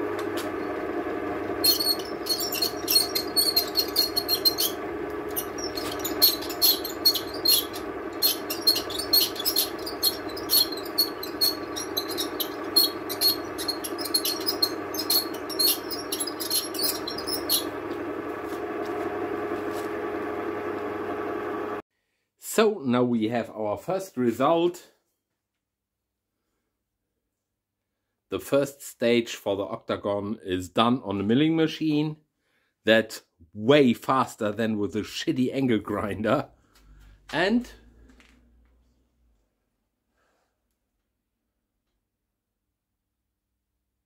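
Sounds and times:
end mill cutting metal ticks: 0.0 - 19.0
milling machine motor hum: 0.0 - 21.8.

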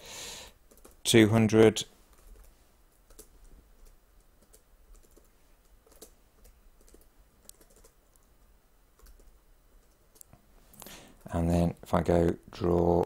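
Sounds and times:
faint keyboard typing: 0.4 - 13.0.

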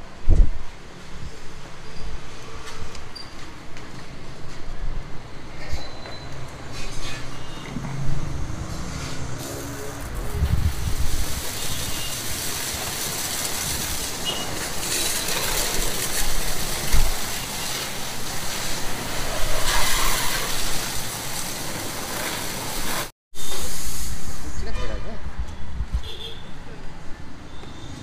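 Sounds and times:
pressure washer spraying water: 8.8 - 24.5.

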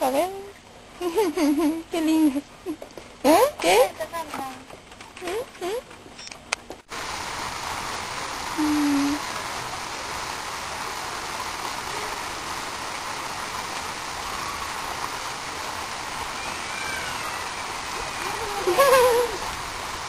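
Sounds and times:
waterfall pouring into a pool: 6.9 - 20.0.

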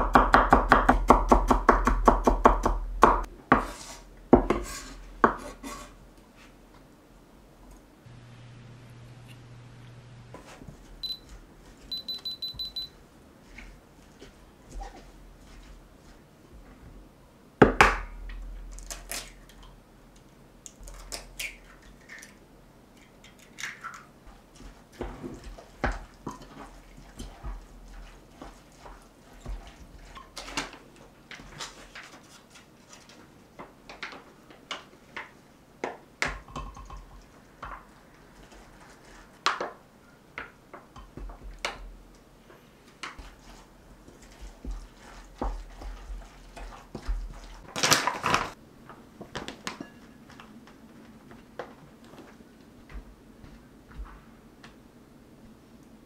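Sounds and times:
wooden utensil stirring and scraping: 3.5 - 6.6, 24.3 - 35.2, 36.8 - 39.4, 42.9 - 48.6.

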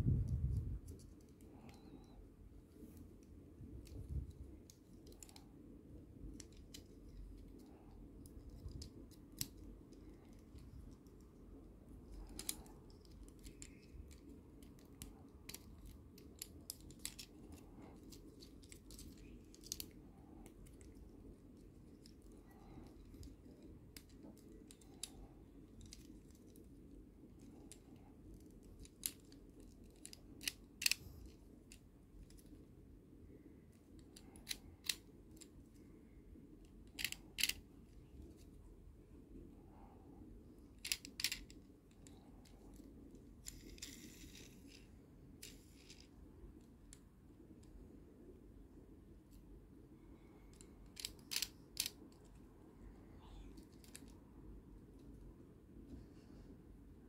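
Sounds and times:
plastic toy parts clicking: 3.8 - 5.5, 6.2 - 11.1, 12.1 - 21.0, 27.4 - 32.5, 33.9 - 35.5, 36.6 - 37.6, 40.7 - 46.1, 50.5 - 52.4, 53.6 - 54.2.

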